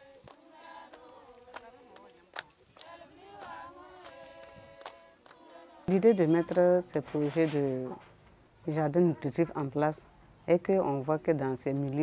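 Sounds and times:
group chant-like singing: 0.0 - 6.8.

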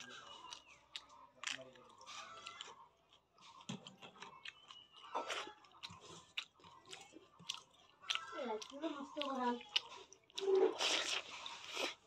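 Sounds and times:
crunchy chewing: 0.0 - 12.0
wet mouth sounds: 3.5 - 12.0.

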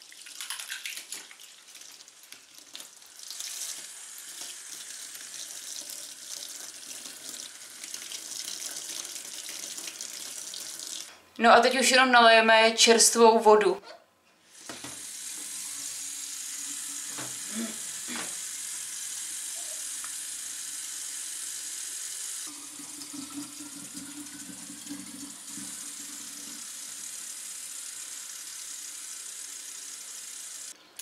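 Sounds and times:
water running into a bottle: 14.5 - 30.0.

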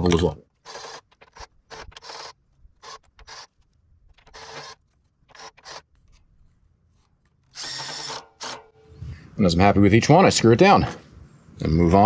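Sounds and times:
cordless drill raspy bursts: 0.6 - 6.0, 7.5 - 9.0.

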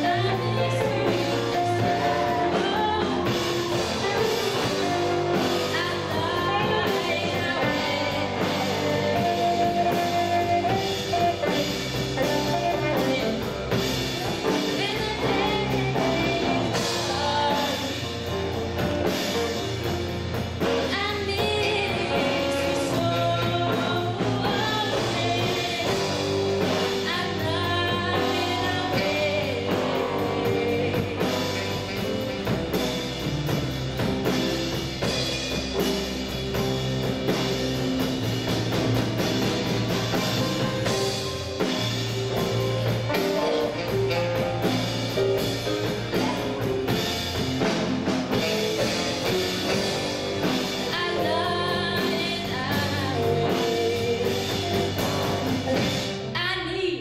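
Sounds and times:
woman singing: 0.0 - 19.7, 20.6 - 32.8, 48.3 - 57.0
live blues band playing: 0.0 - 57.0.

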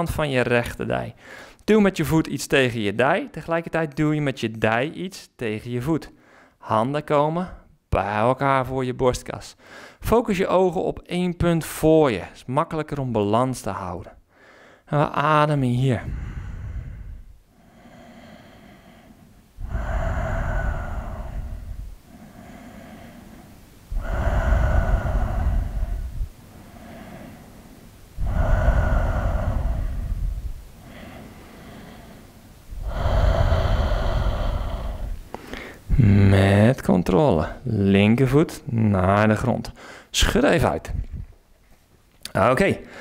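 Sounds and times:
man breathing deeply: 1.2 - 1.6, 6.2 - 6.6, 9.6 - 10.0, 14.3 - 14.9, 16.0 - 36.3, 39.8 - 40.1.

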